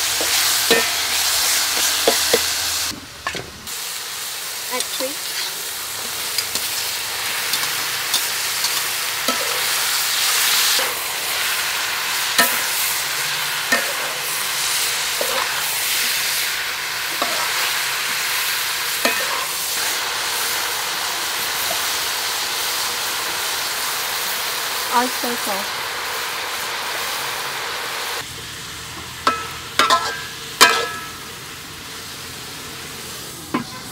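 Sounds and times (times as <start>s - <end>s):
metal spatula scraping wok: 0.0s - 3.5s, 4.7s - 20.5s, 29.3s - 31.2s
fish sizzling in a wok: 0.0s - 33.9s.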